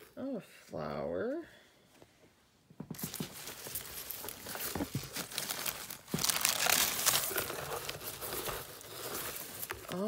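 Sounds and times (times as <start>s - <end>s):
packing material crinkling: 3.0s - 10.0s.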